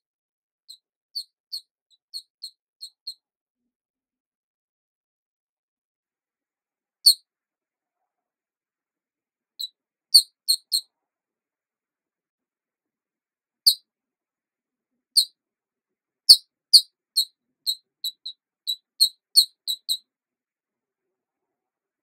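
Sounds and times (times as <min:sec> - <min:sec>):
short high-pitched chirps: 0:16.3 - 0:20.0.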